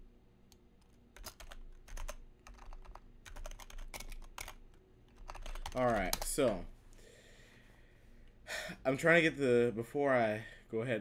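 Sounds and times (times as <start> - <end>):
computer keyboard typing: 0.8 - 6.6.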